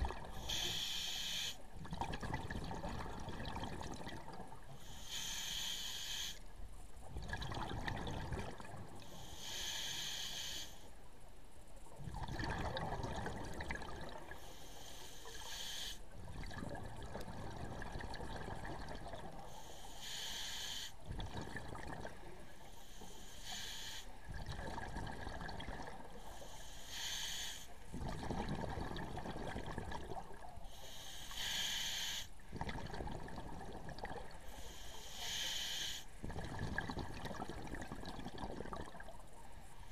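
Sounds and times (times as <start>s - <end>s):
regulator hissing inhalation: 0.4s - 1.6s, 4.8s - 6.4s, 9.1s - 10.9s, 14.4s - 16.0s, 19.5s - 21.0s, 22.8s - 24.2s, 26.2s - 27.7s, 30.7s - 32.3s, 34.5s - 36.2s.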